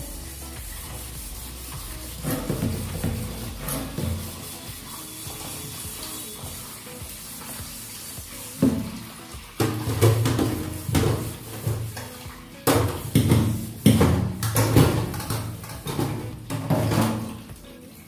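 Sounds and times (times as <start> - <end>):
tap water running: 0.0 - 18.0
metal pots clanking in a sink: 2.2 - 4.3, 8.6 - 17.5.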